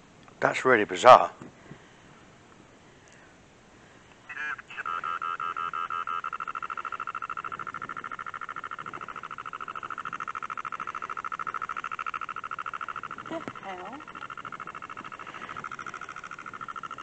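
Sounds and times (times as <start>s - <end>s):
rapid pulsing electronic alarm: 4.6s - 17.0s.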